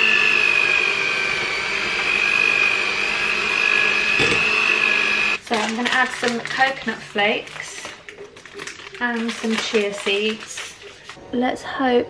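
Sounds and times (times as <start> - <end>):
electric hand mixer whining: 0.0 - 5.4
brief knock: 4.2 - 4.6.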